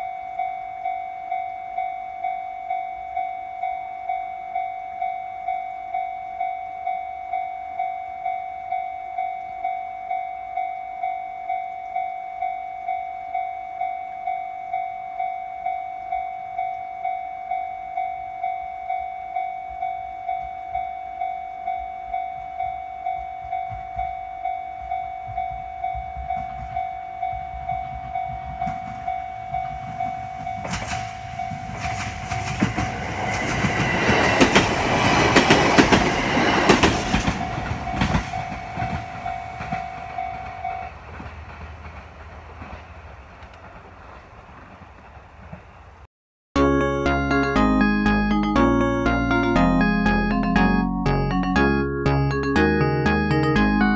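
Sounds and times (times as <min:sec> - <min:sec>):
train wheels clattering: 0:25.3 - 0:45.8
level crossing bell dinging: 0:46.6 - 0:53.9.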